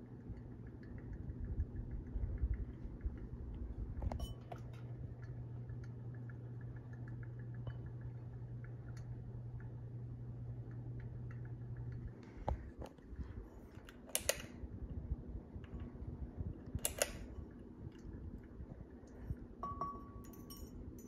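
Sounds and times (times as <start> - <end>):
ceiling fan motor hum: 0.0 - 21.0
fan clicking: 10.6 - 19.4.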